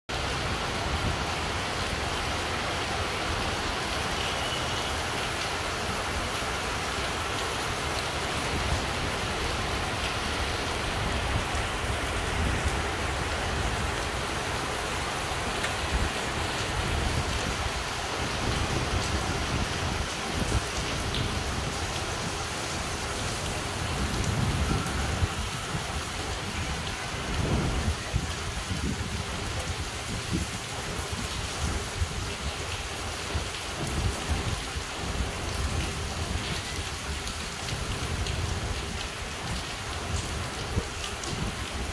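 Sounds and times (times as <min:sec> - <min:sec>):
heavy rain hissing: 0:00.1 - 0:41.9
gusty wind rumbling: 0:08.4 - 0:32.3.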